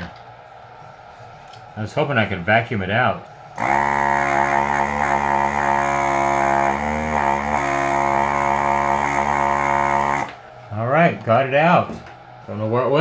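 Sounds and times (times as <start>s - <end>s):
desoldering vacuum pump running: 3.5s - 10.5s.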